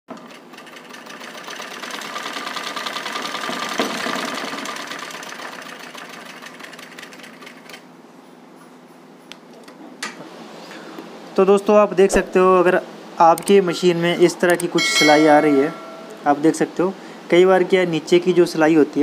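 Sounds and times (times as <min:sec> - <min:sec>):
sewing machine stitching: 0:00.1 - 0:07.8.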